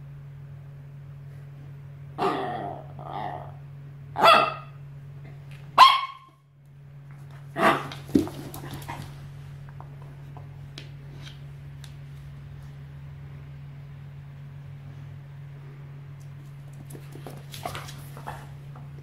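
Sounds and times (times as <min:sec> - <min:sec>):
steady low hum: 0:00.0 - 0:19.0
small dog barking: 0:02.2 - 0:02.6, 0:04.2 - 0:04.8, 0:05.8 - 0:06.4, 0:07.6 - 0:08.0.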